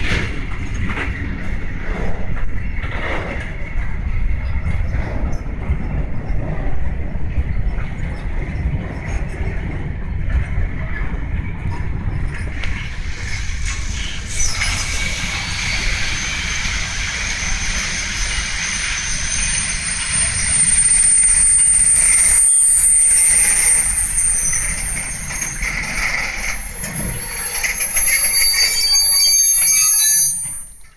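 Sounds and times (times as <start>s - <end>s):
freight train rumbling on rails: 0.0s - 30.9s
metallic wheel squeal: 12.2s - 30.9s.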